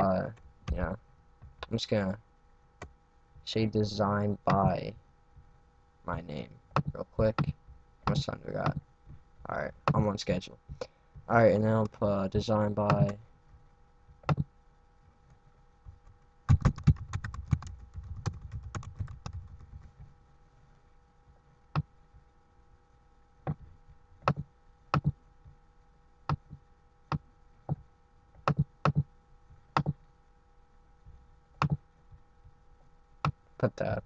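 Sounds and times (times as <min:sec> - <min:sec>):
faint steady hum: 0:00.0 - 0:34.0
computer keyboard typing: 0:16.5 - 0:19.7.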